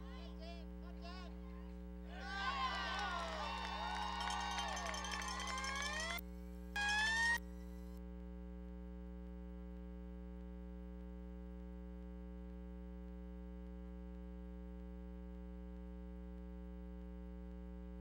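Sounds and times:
electrical hum: 0.0 - 8.0.

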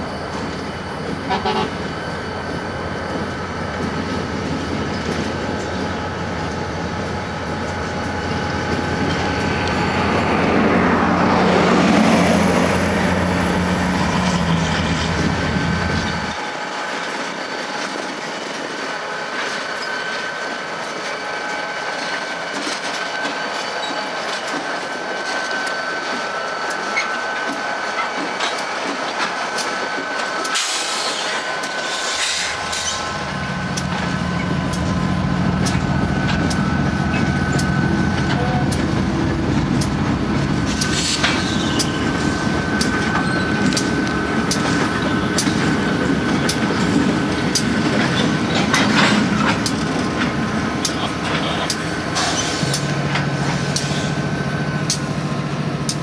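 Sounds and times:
diesel engine drone: 6.8 - 16.5, 32.3 - 56.0
train wheels clicking over rail joints: 21.9 - 56.0
steady high whine: 31.1 - 47.8.

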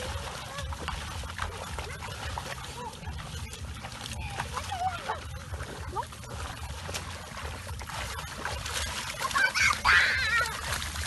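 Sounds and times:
child shouting excitedly: 9.4 - 10.7.

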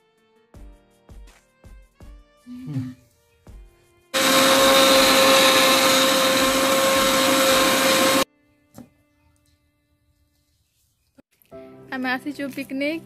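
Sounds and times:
mixer grinder whining: 4.2 - 8.3.

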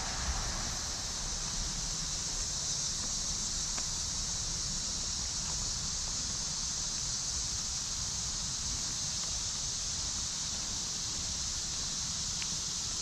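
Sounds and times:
wind rumble on microphone: 0.0 - 4.9
insect chorus drone: 0.0 - 13.0.

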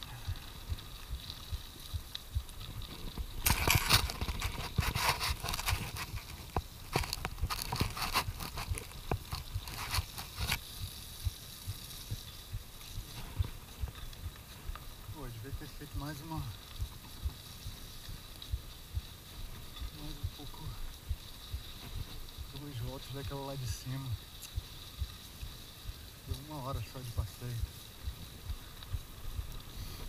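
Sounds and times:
bike rattling: 0.0 - 30.0
bike tyres crunching on gravel: 0.0 - 30.0.

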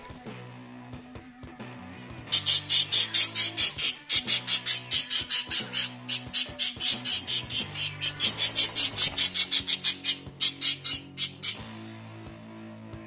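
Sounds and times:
parrots chattering shrilly: 2.3 - 11.7.

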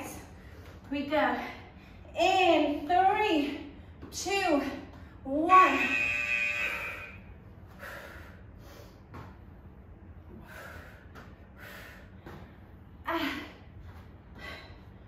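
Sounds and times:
woman's sharp exertion breaths: 6.6 - 9.1, 10.3 - 12.5.

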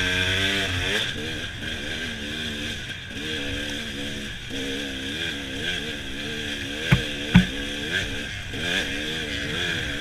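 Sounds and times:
sharp knocks: 6.9 - 7.6.

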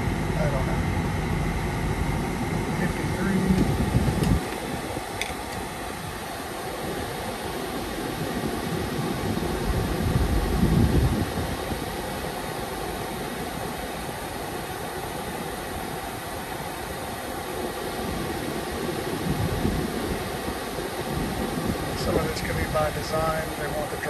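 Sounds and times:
low rumble: 0.0 - 6.2
car engine idling: 0.0 - 8.4
air rushing from vents: 0.0 - 24.0.

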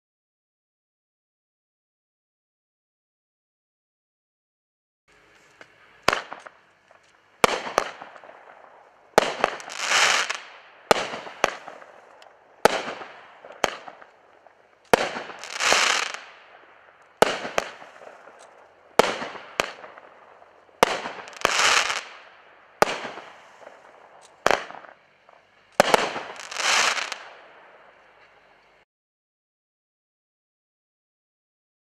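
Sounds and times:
firework reports: 5.1 - 28.8
firework stars sizzling: 5.1 - 28.8.

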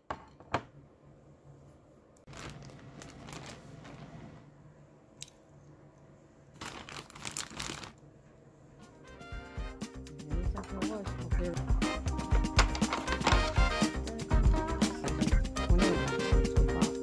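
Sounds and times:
crinkling handling noises: 2.3 - 4.2, 6.5 - 8.1, 12.6 - 13.6.

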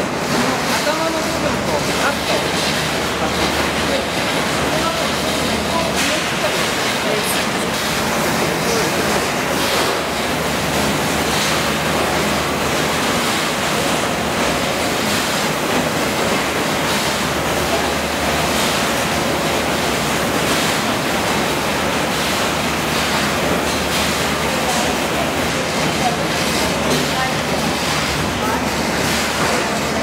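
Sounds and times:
machinery humming: 0.0 - 30.0.

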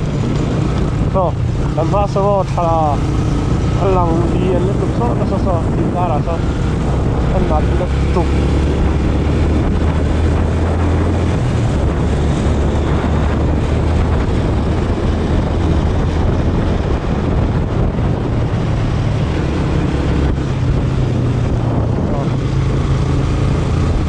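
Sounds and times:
motorcycle engine running: 0.0 - 24.0
wind buffeting microphone: 0.0 - 24.0.

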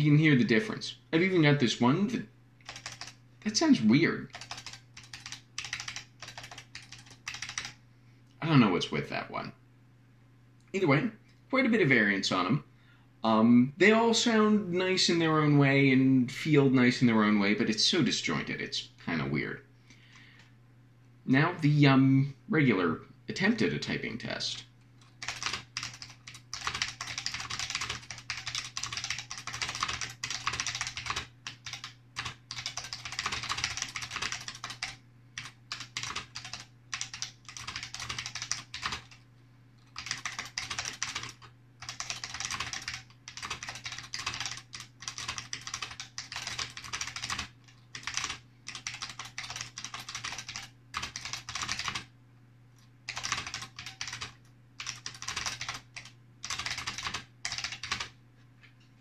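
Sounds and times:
fast typing on a keyboard: 2.6 - 7.8, 25.0 - 39.2, 39.8 - 52.0, 53.1 - 58.1.

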